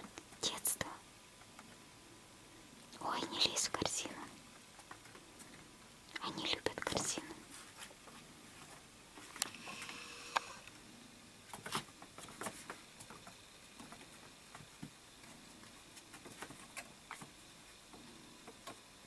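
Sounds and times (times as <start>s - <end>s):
kittens tapping and rustling paper: 11.5s - 18.8s.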